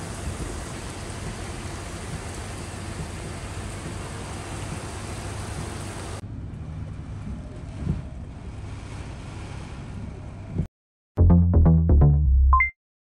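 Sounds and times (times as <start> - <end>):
heavy rain hissing: 0.0 - 6.2
tyres wading through floodwater: 0.0 - 10.6
bus engine: 0.0 - 10.7
wind: 0.0 - 10.7.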